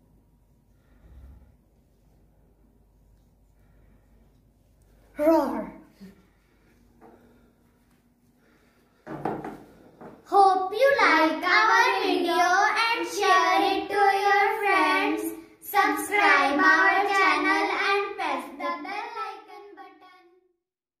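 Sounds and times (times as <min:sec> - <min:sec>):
children singing: 0:11.6 - 0:19.8.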